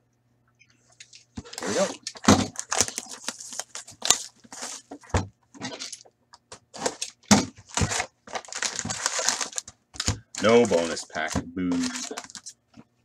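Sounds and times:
plastic wrap crinkling and tearing: 0:01.4 - 0:05.0, 0:06.7 - 0:12.6.

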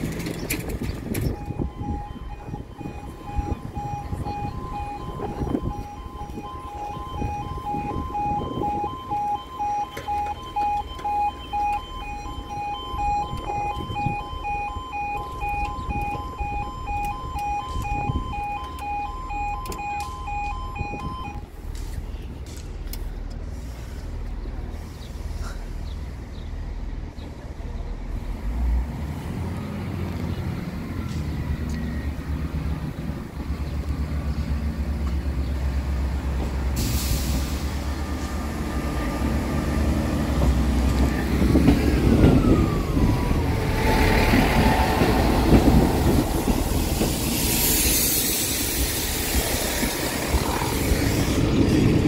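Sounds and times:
level crossing alarm: 0:01.0 - 0:21.5
approaching train rumble: 0:20.2 - 0:52.0.

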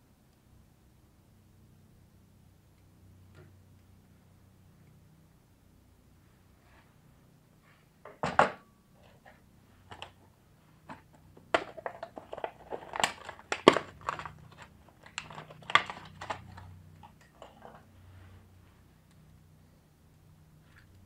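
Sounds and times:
plastic crinkling: 0:10.9 - 0:17.8.

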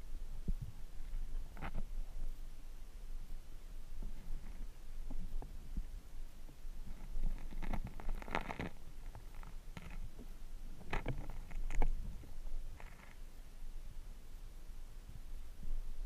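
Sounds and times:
underwater camera handling scrapes: 0:06.9 - 0:10.1.

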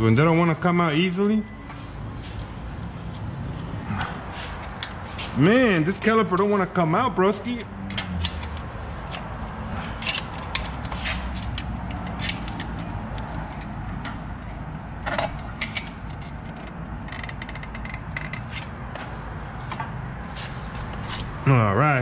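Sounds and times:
hand tools clicking and scraping metal: 0:07.8 - 0:21.5.

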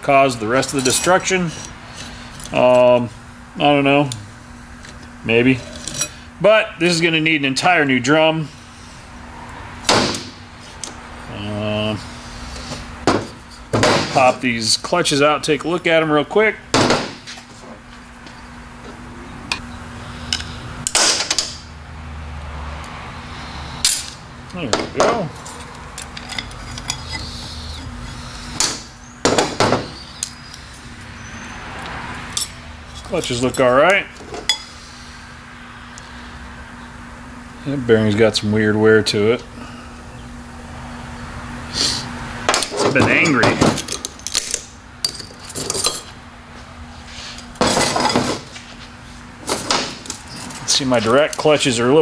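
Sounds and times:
metal parts scraping clatter: 0:05.6 - 0:06.2, 0:43.8 - 0:46.1
loud knocks: 0:09.9 - 0:10.4, 0:13.0 - 0:14.2, 0:16.7 - 0:17.2, 0:28.6 - 0:30.0.

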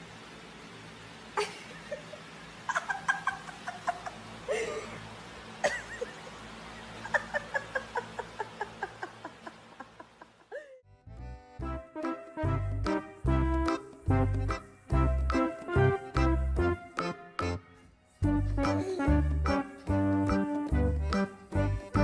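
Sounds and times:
electric fan humming: 0:00.0 - 0:22.0
person laughing: 0:01.4 - 0:05.0, 0:05.6 - 0:10.9, 0:18.6 - 0:19.3.

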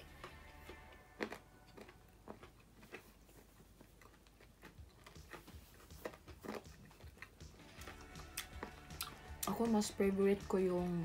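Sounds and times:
chewing bread: 0:00.0 - 0:10.6
mouth clicks and smacks: 0:01.2 - 0:09.5.

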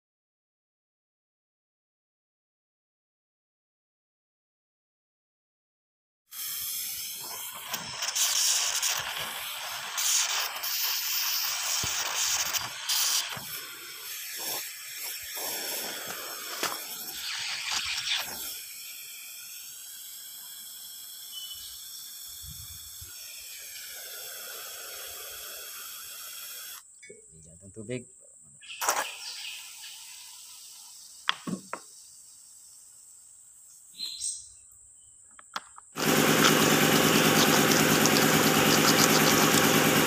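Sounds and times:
molten lead hissing and clattering: 0:06.4 - 0:26.8.

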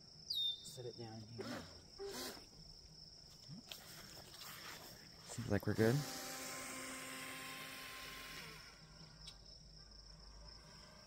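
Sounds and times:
electric motor whining: 0:05.8 - 0:09.0.

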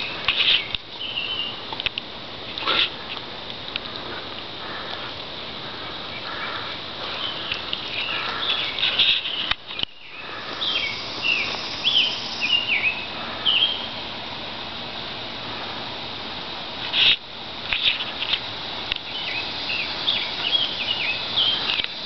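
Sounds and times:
birds chirping and whistling: 0:00.0 - 0:01.6, 0:06.1 - 0:14.0, 0:19.0 - 0:22.0
outdoor background hiss: 0:00.0 - 0:22.0.

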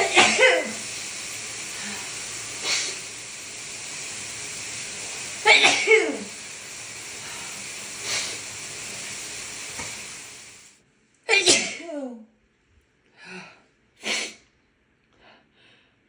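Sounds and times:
breathy bursts: 0:00.0 - 0:09.0
steady background hiss: 0:00.0 - 0:10.8
woman sneezing: 0:11.3 - 0:12.0, 0:14.0 - 0:14.4.

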